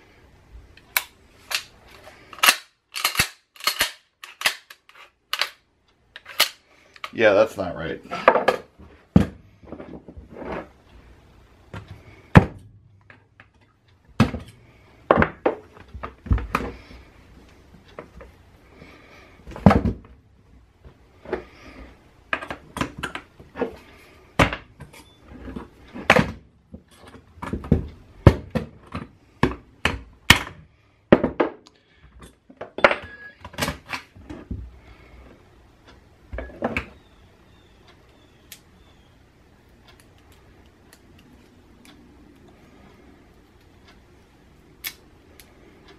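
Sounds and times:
shotgun action clicks and knocks: 2.4 - 5.6.

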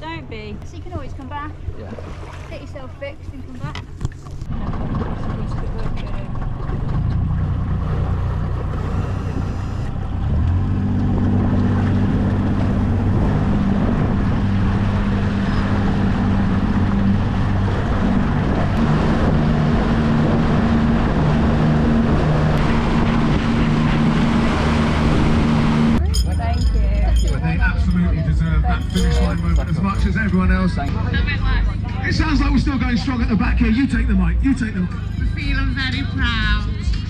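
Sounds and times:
motorboat engine running: 0.0 - 37.0
water rushing: 0.8 - 31.3
wind noise: 8.8 - 30.9.

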